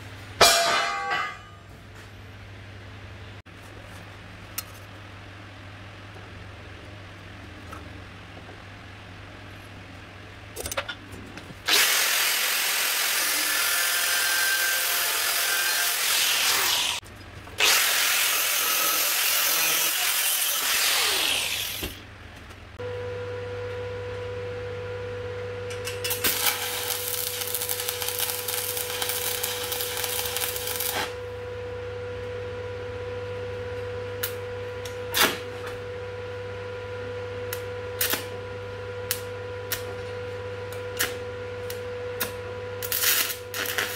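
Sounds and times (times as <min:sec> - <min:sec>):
electrical hum and whine: 0:00.0 - 0:43.9
angle grinder cutting steel: 0:11.7 - 0:17.0, 0:17.6 - 0:21.9
welder crackling: 0:11.7 - 0:17.0, 0:26.0 - 0:31.2, 0:41.7 - 0:43.9.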